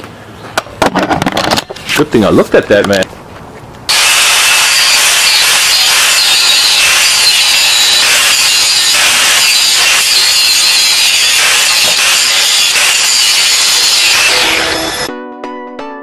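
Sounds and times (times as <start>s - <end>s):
angle grinder grinding steel: 3.9s - 15.1s.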